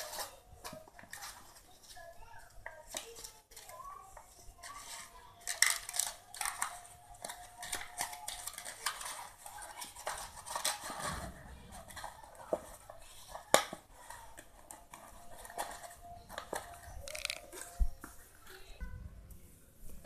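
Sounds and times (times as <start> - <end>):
paper crackling and rustling: 0.0 - 3.9, 4.6 - 18.7.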